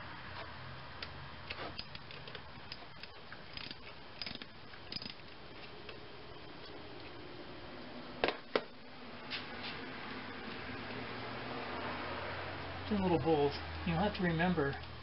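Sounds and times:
ratchet wrench clicking: 0:01.7 - 0:05.2.

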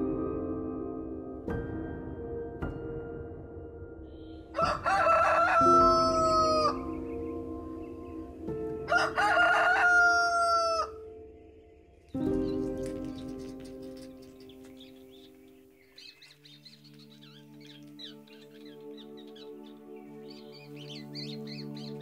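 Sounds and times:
soft background music: 0:00.0 - 0:22.0
rooster crowing: 0:04.6 - 0:06.8, 0:08.9 - 0:11.0.

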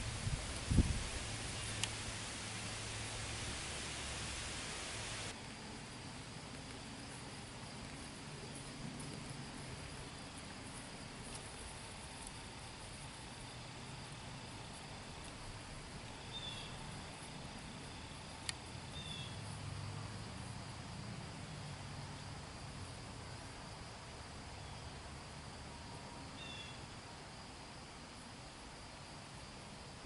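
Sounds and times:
insect drone: 0:00.0 - 0:30.0
faint bird chirps: 0:16.2 - 0:16.9, 0:18.9 - 0:19.4, 0:26.4 - 0:26.8.

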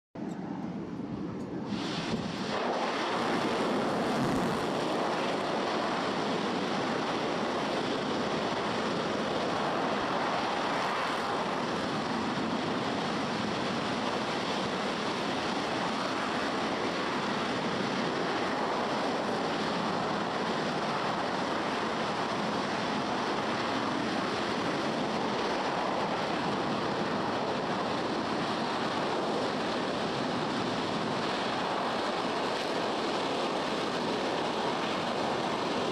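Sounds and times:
rocket engine firing: 0:01.6 - 0:20.9.

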